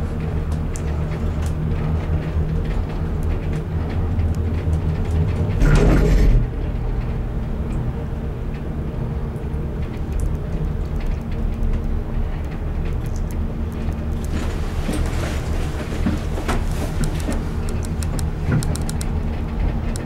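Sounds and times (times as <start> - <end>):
gondola cabin mechanical hum: 0.0 - 20.0
short loud rumble: 5.6 - 6.7.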